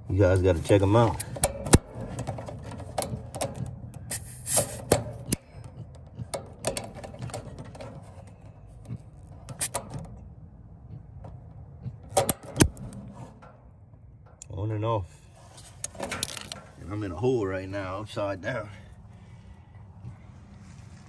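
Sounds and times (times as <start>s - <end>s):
hose coupler clicking and clacking: 0.6s - 14.6s, 15.8s - 16.8s
short hiss: 4.1s - 4.9s.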